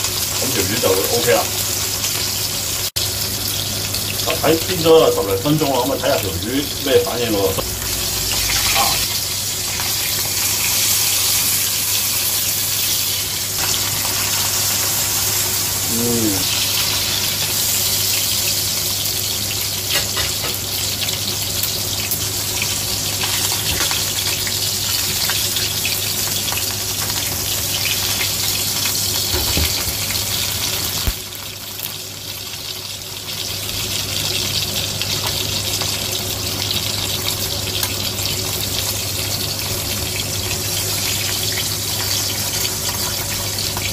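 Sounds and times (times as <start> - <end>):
fish sizzling in oil: 0.0 - 43.9
low hum: 6.7 - 10.1.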